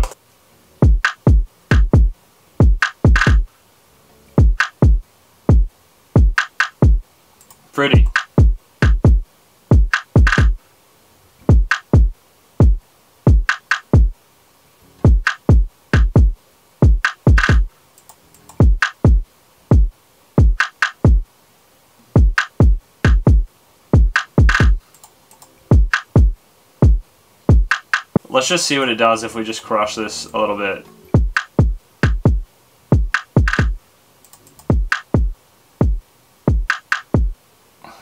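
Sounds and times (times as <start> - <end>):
deep kick drum hits: 0.8 - 3.4, 4.4 - 7.0, 8.0 - 10.6, 11.5 - 14.1, 15.1 - 17.7, 18.6 - 21.2, 22.2 - 24.8, 25.7 - 27.7, 31.2 - 32.4, 34.7 - 37.3.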